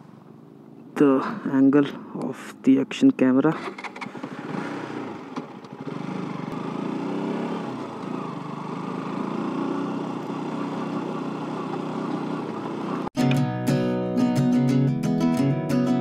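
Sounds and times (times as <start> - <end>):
motorcycle engine running at low revs: 3.9 - 13.1.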